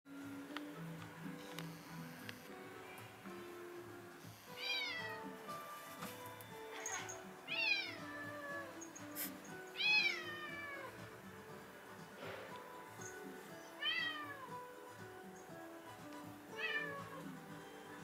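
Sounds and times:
background music: 0:00.1 - 0:18.0
cat meowing: 0:04.5 - 0:05.3, 0:07.5 - 0:08.8, 0:09.7 - 0:11.0, 0:13.8 - 0:14.5, 0:16.5 - 0:17.3.

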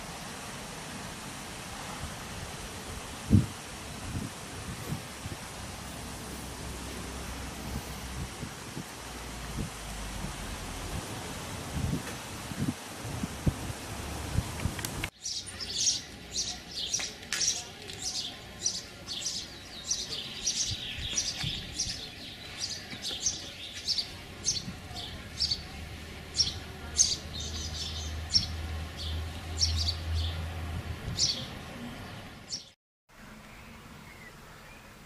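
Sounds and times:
steady hiss: 0:00.0 - 0:26.9
songbirds chirping and singing: 0:15.2 - 0:35.0.

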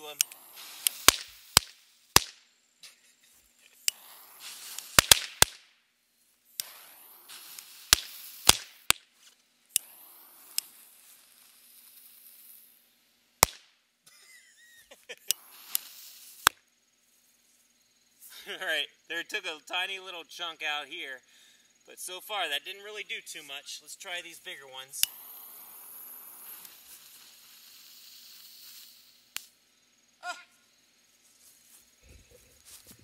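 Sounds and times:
fuse hissing: 0:00.0 - 0:02.2, 0:02.9 - 0:05.5, 0:06.3 - 0:13.6, 0:14.4 - 0:16.6, 0:21.3 - 0:29.6
firecrackers popping: 0:00.0 - 0:16.7, 0:22.3 - 0:29.6.

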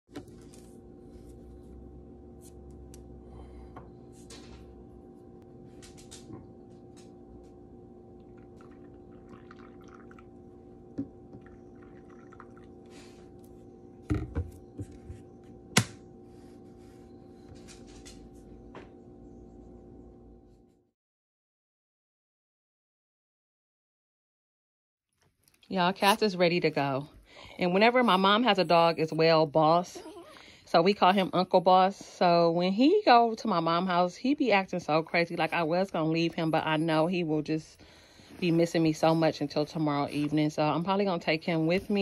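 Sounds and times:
low steady hum: 0:00.1 - 0:20.8, 0:25.4 - 0:42.0
liquid pouring into a mug: 0:08.2 - 0:12.9.

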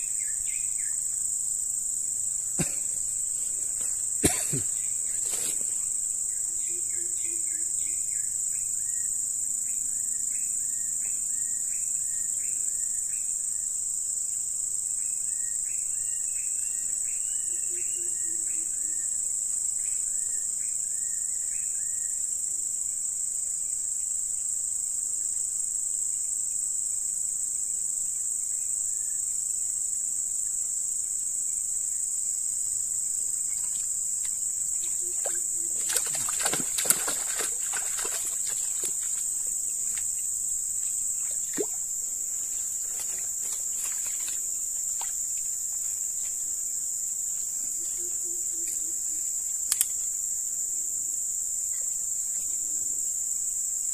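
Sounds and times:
insects droning: 0:00.0 - 0:53.9
rustles in dry stems: 0:02.9 - 0:06.0
sharp click: 0:49.7 - 0:50.0.

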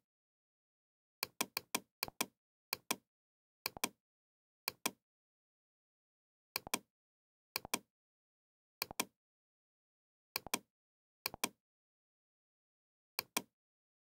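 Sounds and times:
computer mouse clicks: 0:01.2 - 0:03.0, 0:03.7 - 0:04.0, 0:06.6 - 0:06.9, 0:07.6 - 0:07.9, 0:08.8 - 0:09.1, 0:10.4 - 0:10.7, 0:11.3 - 0:11.6, 0:13.2 - 0:13.5.

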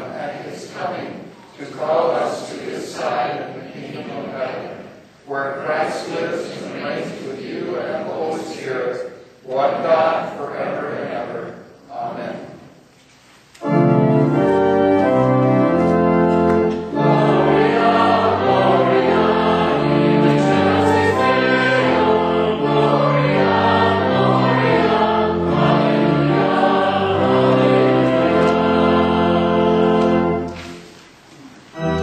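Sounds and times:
congregation singing: 0:00.0 - 0:12.9, 0:13.6 - 0:32.0
church organ playing: 0:13.6 - 0:31.0, 0:31.7 - 0:32.0.

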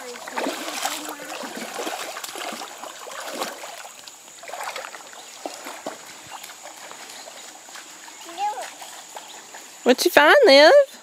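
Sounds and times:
hands splashing water: 0:00.0 - 0:07.9
person wading through water: 0:00.0 - 0:09.8
creek water trickling: 0:00.0 - 0:11.0.

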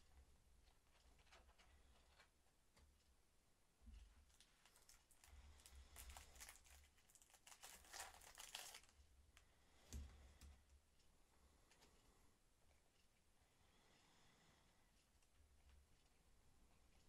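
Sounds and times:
foil packet crinkling and tearing: 0:04.3 - 0:09.0.

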